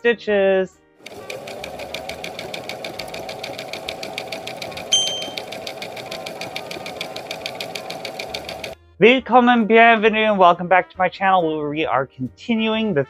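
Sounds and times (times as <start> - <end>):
sewing machine stitching: 1.0 - 8.8
brief high ping: 4.9 - 5.4.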